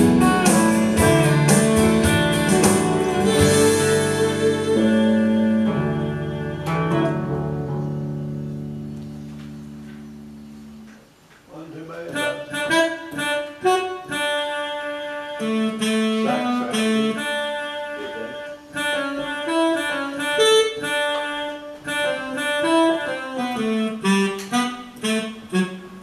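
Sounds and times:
electric bass guitar: 0.0 - 10.9
keyboard melody: 0.0 - 11.3, 12.0 - 26.0.

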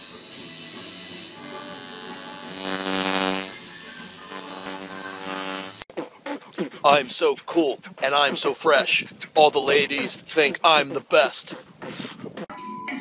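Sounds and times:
tattoo machine buzzing: 0.0 - 5.9.

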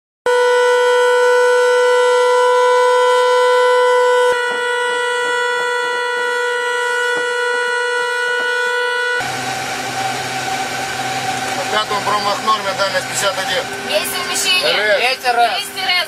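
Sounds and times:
electric alarm horn: 0.2 - 16.0.

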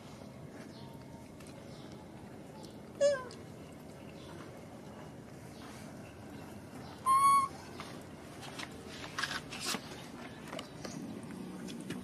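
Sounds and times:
baby monkey coo call: 7.0 - 7.6.

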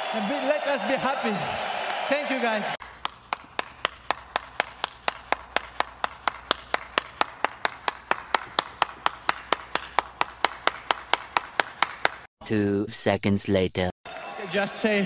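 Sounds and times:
person clapping hands: 2.8 - 12.3.

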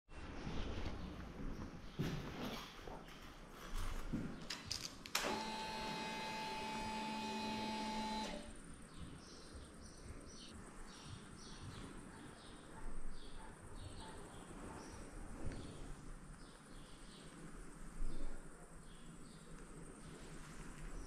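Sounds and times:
fuel pump whine: 5.2 - 8.5.

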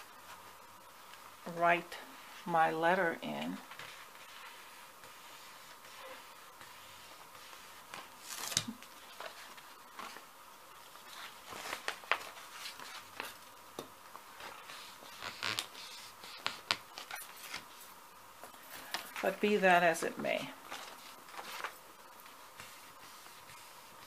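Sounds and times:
paper rustling: 3.7 - 10.3, 10.9 - 13.4, 20.6 - 24.0.

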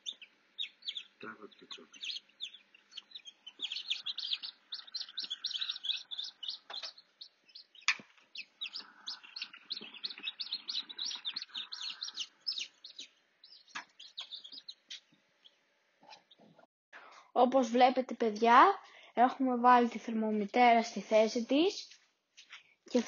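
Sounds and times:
chicks peeping: 0.0 - 16.6.

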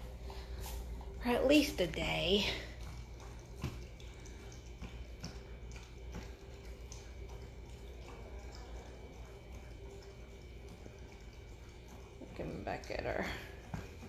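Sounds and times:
low steady hum: 0.0 - 14.0
wet clicks from dogs' mouths: 2.9 - 8.8.

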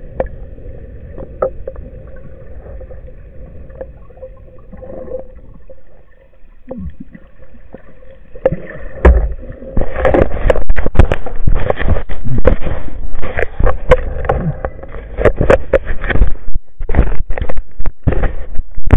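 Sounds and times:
bubbles underwater: 0.0 - 11.6
muffled water swishing underwater: 0.0 - 18.9.

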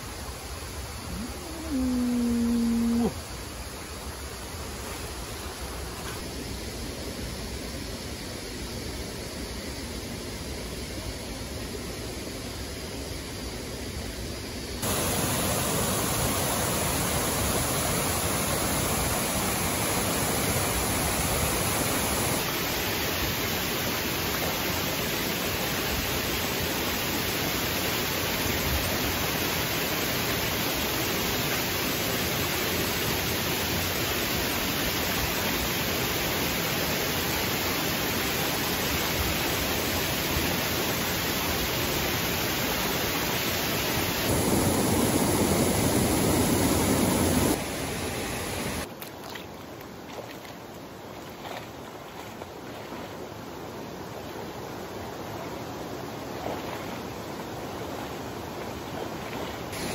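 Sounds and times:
mountain stream rushing: 14.8 - 59.9.

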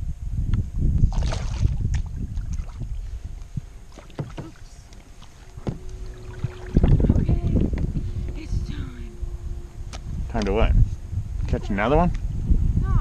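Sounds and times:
water sloshing against hull: 1.0 - 10.8.

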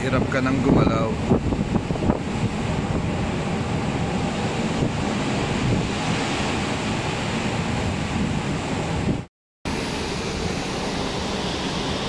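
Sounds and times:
wind buffeting microphone: 0.0 - 9.3
waves breaking against hull: 0.0 - 12.0.

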